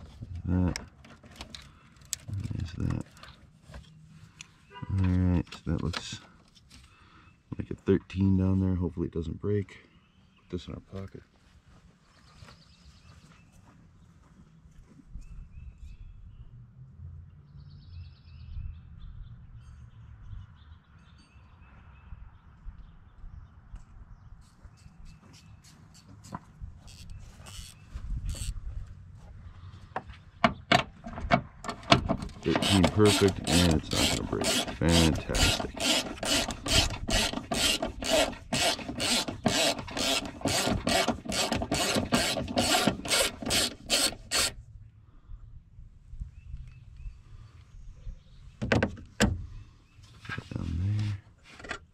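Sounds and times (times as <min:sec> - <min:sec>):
songbirds chirping: 0:00.0 - 0:51.9
hand ratchet clicking: 0:31.7 - 0:44.5.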